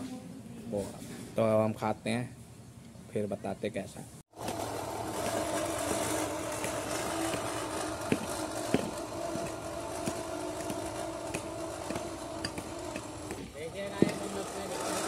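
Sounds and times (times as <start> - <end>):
push reel lawn mower whirring: 4.3 - 15.0.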